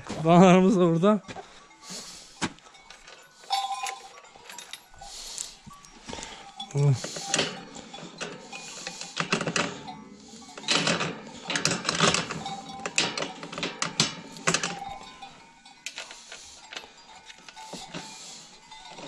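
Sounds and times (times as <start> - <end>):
padlock and key clinking: 2.8 - 19.0
metal gate rattling: 6.3 - 19.0.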